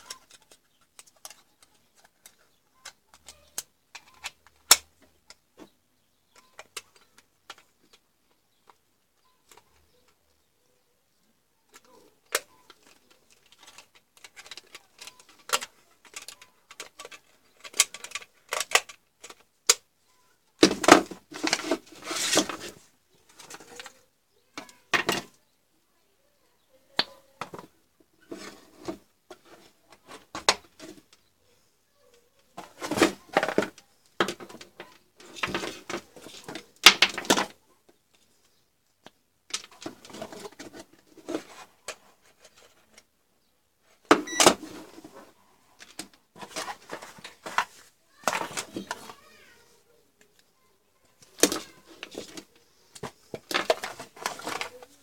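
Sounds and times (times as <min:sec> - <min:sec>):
rubbing and rustling: 0:11.7 - 0:25.3, 0:27.1 - 0:38.5, 0:39.5 - 0:43.2, 0:43.8 - 0:55.0.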